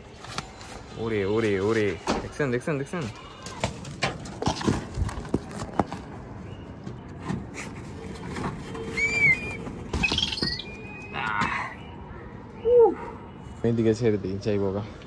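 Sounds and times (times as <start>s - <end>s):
bird whistled call: 8.9s - 12.0s, 12.6s - 13.1s.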